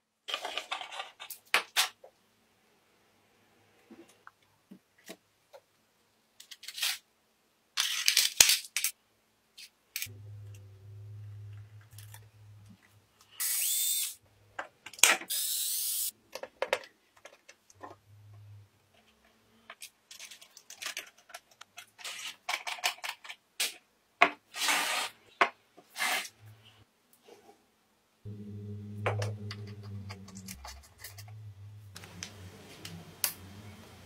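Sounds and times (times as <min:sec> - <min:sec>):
low hum: 0:10.1 - 0:13.4, 0:17.8 - 0:18.9, 0:28.3 - 0:34.0
small parts clicking and knocking: 0:13.9 - 0:18.0, 0:19.0 - 0:23.4
small motor bursts: 0:15.3 - 0:16.1.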